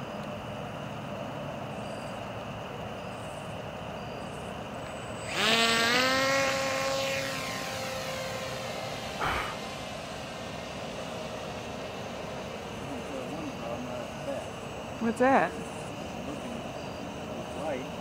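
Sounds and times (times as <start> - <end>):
model airplane motor whine: 3.9 - 18.0.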